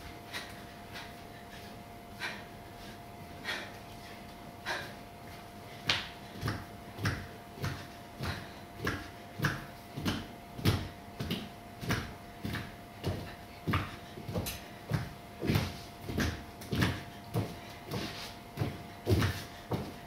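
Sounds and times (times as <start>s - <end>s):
faint steady hum: 0.0s - 20.0s
hands and feet slapping on floor: 5.3s - 20.0s.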